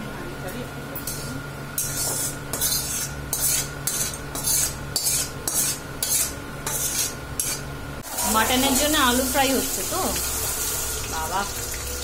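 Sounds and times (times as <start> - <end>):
metal spoon scraping a wok: 1.0 - 7.7.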